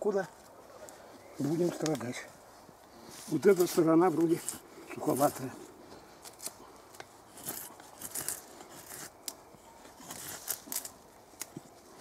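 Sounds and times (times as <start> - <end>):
knife scraping wooden stick: 6.3 - 11.8.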